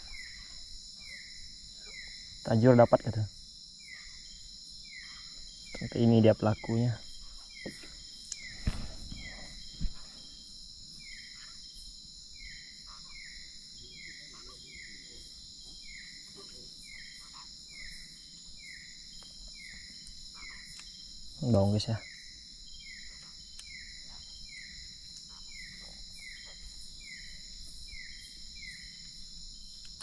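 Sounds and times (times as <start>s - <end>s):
insect chorus buzzing: 0.0s - 30.0s
insect falling chirp: 7.5s - 11.6s.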